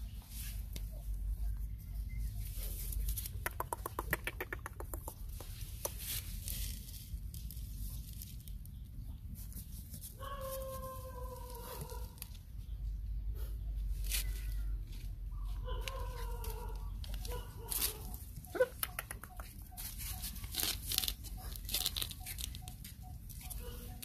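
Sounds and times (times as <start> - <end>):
quick run of clicks: 3.2 - 6.0.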